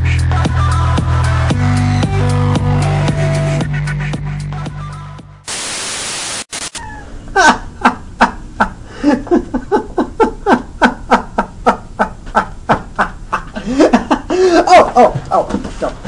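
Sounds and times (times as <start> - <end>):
static noise: 5.4 - 6.9
man snickering: 7.3 - 15.2.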